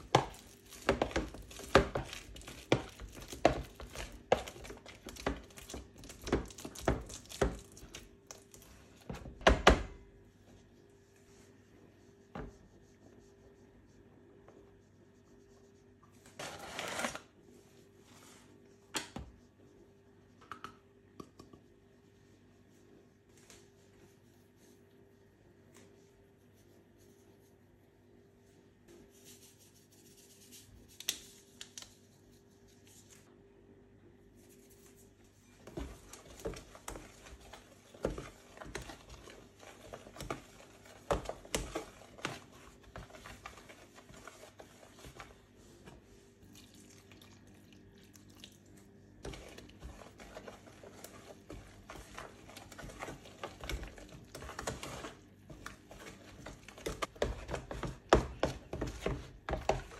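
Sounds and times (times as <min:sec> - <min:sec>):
wet squelching stirs: 0:00.0 - 0:09.4, 0:34.3 - 0:59.9
spoon scraping plastic tub: 0:16.3 - 0:17.3, 0:35.5 - 0:46.1, 0:49.2 - 0:59.9.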